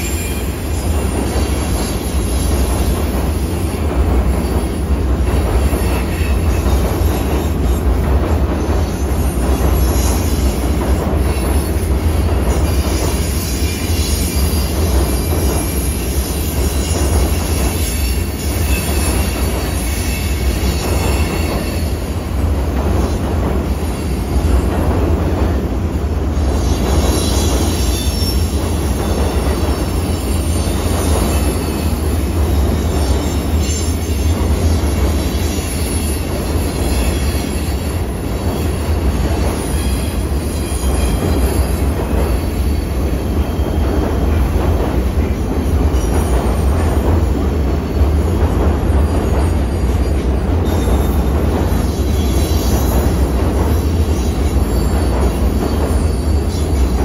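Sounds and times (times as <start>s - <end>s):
high wheel squeal: 0.0s - 2.8s, 26.6s - 43.8s
train wheels rumbling on bridge: 0.0s - 57.0s.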